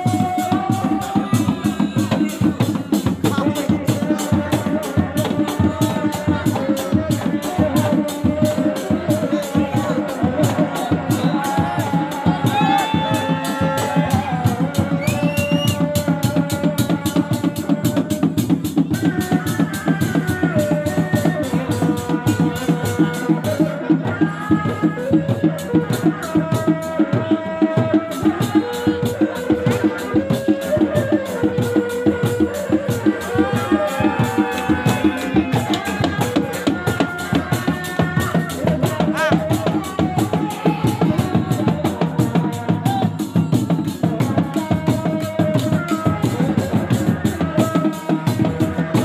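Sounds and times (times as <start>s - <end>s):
drums beating fast rhythm: 0.0s - 49.0s
shawm wavering melody: 0.0s - 49.0s.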